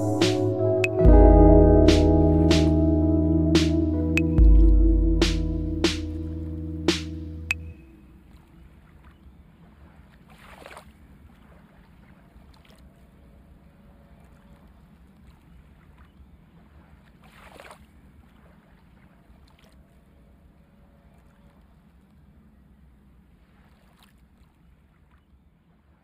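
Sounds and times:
low rumble: 0.0 - 7.9.

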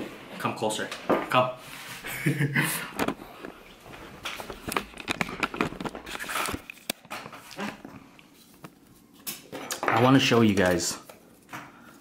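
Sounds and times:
rustling: 3.1 - 9.2
camera handling clicks and knocks: 4.5 - 7.1.

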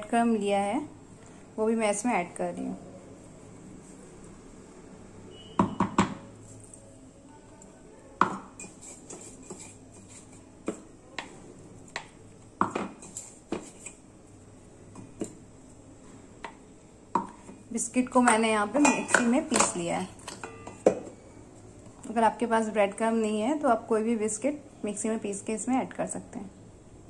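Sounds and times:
steel container tapping bowl: 18.2 - 21.0.

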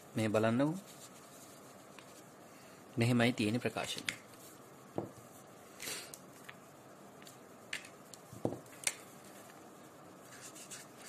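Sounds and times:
soft rustle: 0.4 - 2.7.

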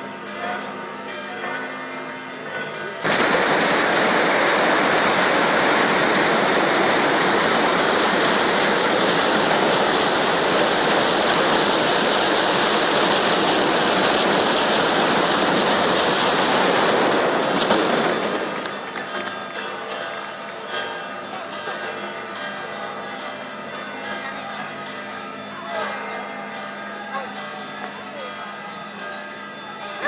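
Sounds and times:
fireworks crackling: 3.0 - 21.4.

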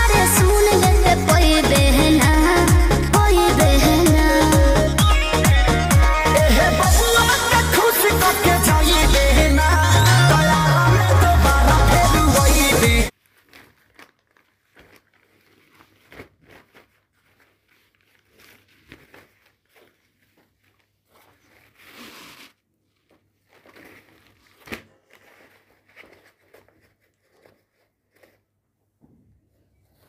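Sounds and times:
fabric bag rustling: 13.1 - 28.6.

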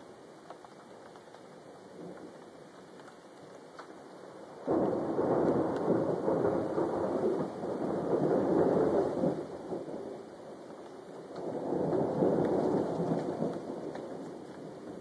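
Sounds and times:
faint rain: 0.0 - 15.0
thunder rumble: 4.4 - 15.0.

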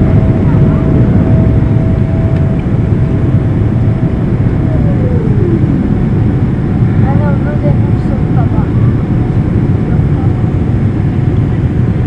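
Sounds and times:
jet engine cabin rumble: 0.0 - 12.0
thin whine gliding down: 1.3 - 8.5.

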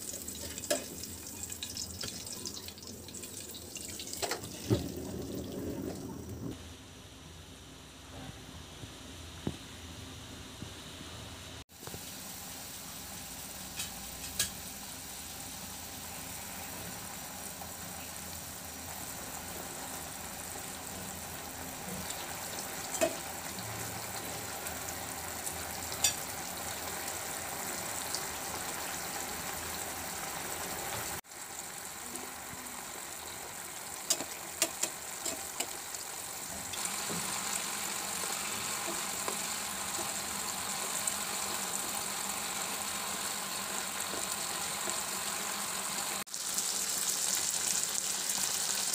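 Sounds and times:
gravy bubbling and sizzling in a pan: 0.0 - 6.7, 8.3 - 48.9.

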